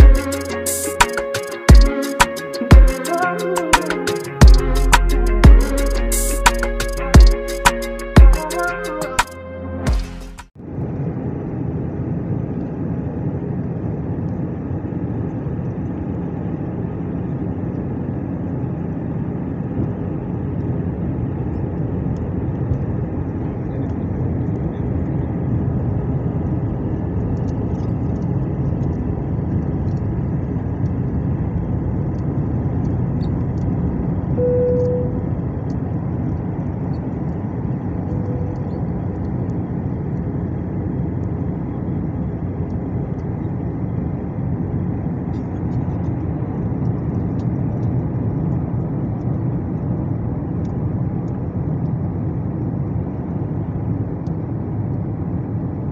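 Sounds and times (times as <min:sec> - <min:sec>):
airplane cabin engine rush: 0:00.0 - 0:55.9
brief cabin tone: 0:34.4 - 0:35.5, 0:38.1 - 0:39.0.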